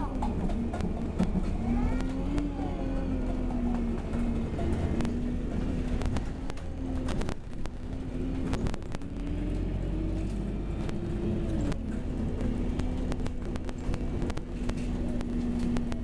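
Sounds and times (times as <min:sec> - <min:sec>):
bus engine drone: 0:00.0 - 0:16.0
sharp clicks and rattles: 0:00.0 - 0:16.0.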